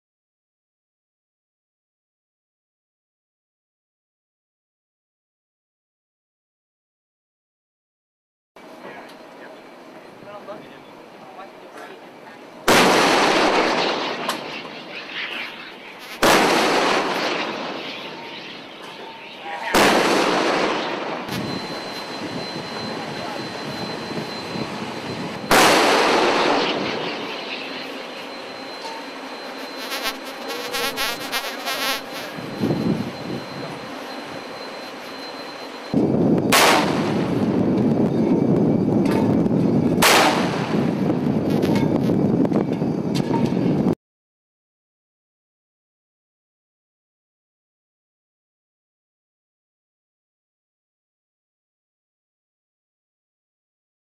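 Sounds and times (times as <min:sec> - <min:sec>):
rumble of gunfire: 0:12.7 - 0:14.3, 0:16.2 - 0:17.8, 0:19.8 - 0:21.4, 0:25.5 - 0:27.0, 0:36.5 - 0:37.4, 0:40.0 - 0:41.8
deck gun blasts: 0:16.2 - 0:17.5, 0:25.5 - 0:26.7, 0:36.5 - 0:37.1, 0:40.0 - 0:40.7
wind and sea noise: 0:32.2 - 0:44.0.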